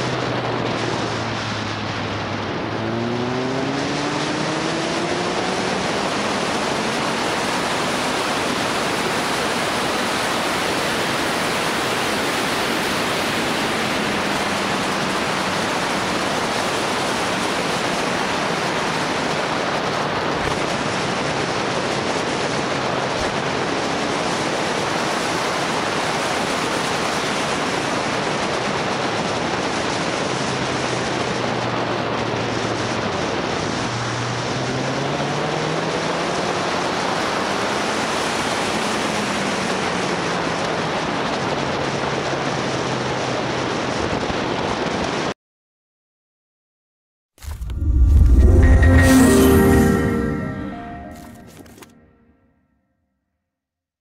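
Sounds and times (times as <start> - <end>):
wind roaring on microphone: 0.0 - 45.3.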